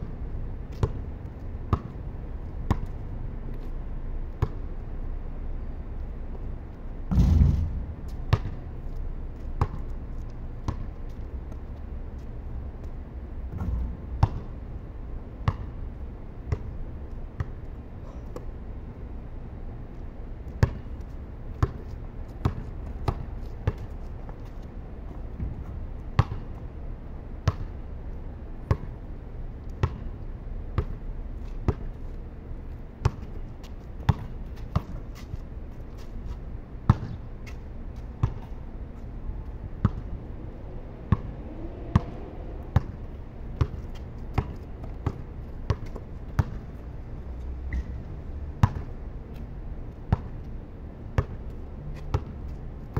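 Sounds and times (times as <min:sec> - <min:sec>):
low steady rumble: 0:00.0 - 0:52.9
basketball bouncing on concrete: 0:00.7 - 0:01.0, 0:01.7 - 0:02.0, 0:02.6 - 0:03.0, 0:04.4 - 0:04.6, 0:07.1 - 0:08.7, 0:09.4 - 0:10.0, 0:10.6 - 0:11.8, 0:13.5 - 0:14.6, 0:15.4 - 0:15.8, 0:20.6 - 0:24.6, 0:26.2 - 0:26.5, 0:27.4 - 0:27.7, 0:28.6 - 0:28.9, 0:29.8 - 0:30.1, 0:34.1 - 0:35.0, 0:36.8 - 0:38.6, 0:39.8 - 0:40.0, 0:43.6 - 0:46.6, 0:48.6 - 0:49.0, 0:50.1 - 0:50.4, 0:51.2 - 0:51.4, 0:52.0 - 0:52.6.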